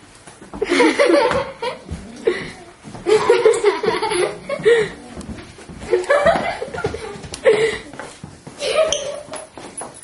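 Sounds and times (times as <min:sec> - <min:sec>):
girls laughing: 0:00.6 - 0:09.6.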